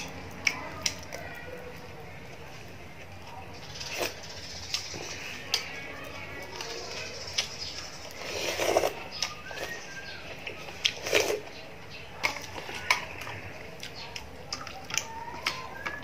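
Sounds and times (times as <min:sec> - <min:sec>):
chewing with lip smacks: 0:04.0 - 0:16.0
slurping from a spoon: 0:06.6 - 0:10.0, 0:10.6 - 0:11.6.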